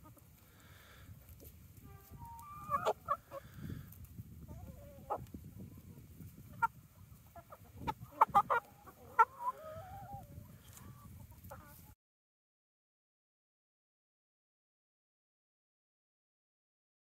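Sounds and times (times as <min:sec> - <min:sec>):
hens and rooster clucking: 0:00.0 - 0:12.0.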